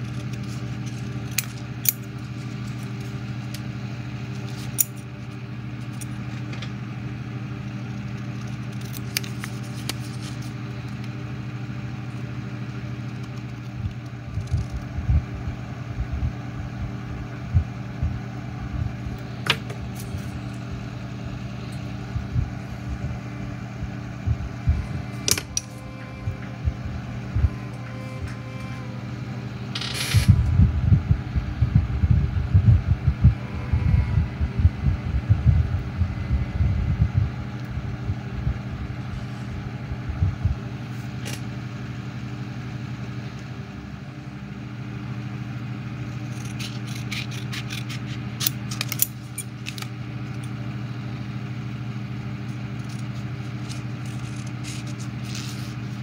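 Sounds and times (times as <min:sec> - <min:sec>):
low hum: 0:00.0 - 0:56.0
scissors snipping paper: 0:08.1 - 0:11.1, 0:46.2 - 0:49.9, 0:52.8 - 0:55.8
tools clicking and tapping: 0:25.2 - 0:25.8.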